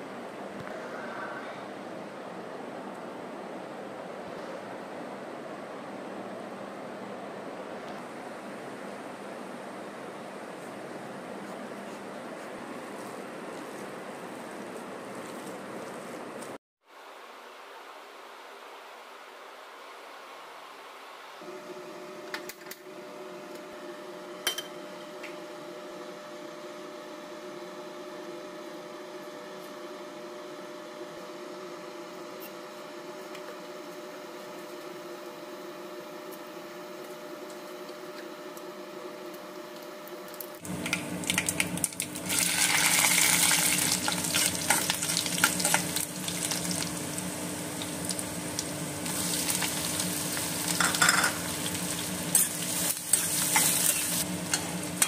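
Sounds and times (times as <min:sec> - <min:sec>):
gas burner low hum: 0:00.0 - 0:16.6, 0:21.3 - 0:55.0
onions sizzling in hot oil: 0:40.8 - 0:55.0.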